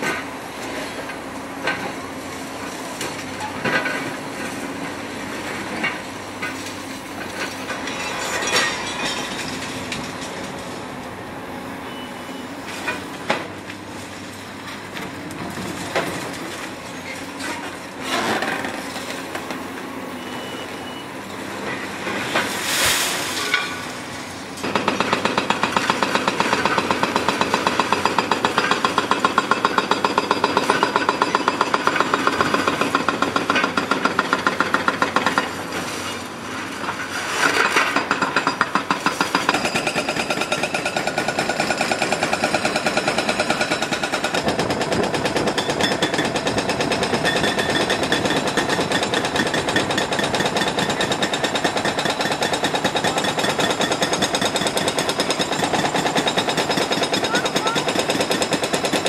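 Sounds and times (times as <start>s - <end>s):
excavator engine running: 23.2s - 59.0s
hydraulic breaker pounding concrete: 24.6s - 35.8s, 36.8s - 59.0s.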